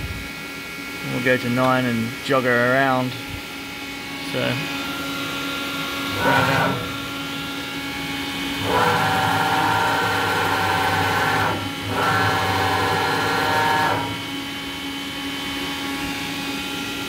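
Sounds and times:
steady machine hum: 0:00.0 - 0:17.0
servo drive whining: 0:04.2 - 0:14.4.

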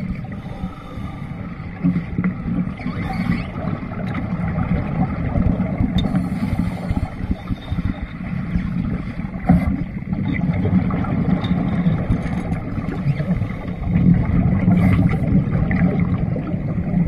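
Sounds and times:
exhaled bubbles: 0:01.4 - 0:17.0
underwater regulator breathing rumble: 0:04.8 - 0:10.1, 0:10.7 - 0:17.0.

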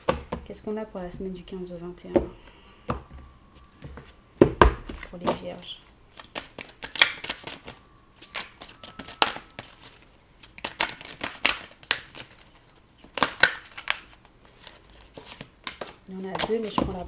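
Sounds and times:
cards shuffled by hand: 0:06.1 - 0:17.0.

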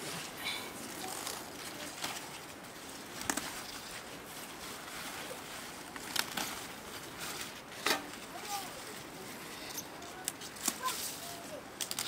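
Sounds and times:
leaves snapping and rustling: 0:00.8 - 0:09.1, 0:09.7 - 0:12.0.

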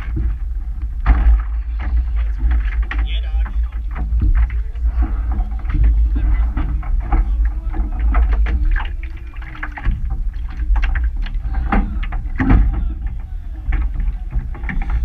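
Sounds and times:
footsteps on wooden dock: 0:00.0 - 0:15.0
rowing boat being handled: 0:00.0 - 0:15.0
wind rumbling on microphone: 0:00.0 - 0:15.0.

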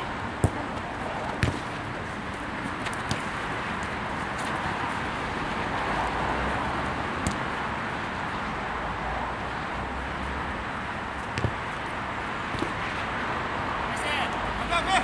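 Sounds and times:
outdoor background rush: 0:00.0 - 0:15.0
ball kick: 0:00.4 - 0:01.8, 0:03.0 - 0:03.4, 0:11.3 - 0:11.7, 0:12.5 - 0:12.8.

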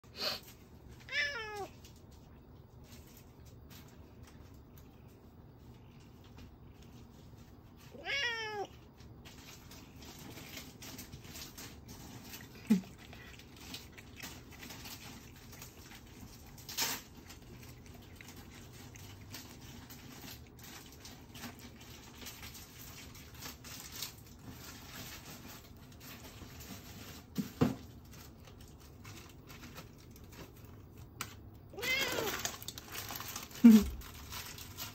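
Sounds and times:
cat meowing: 0:01.0 - 0:01.8, 0:07.9 - 0:08.8, 0:31.7 - 0:32.6.

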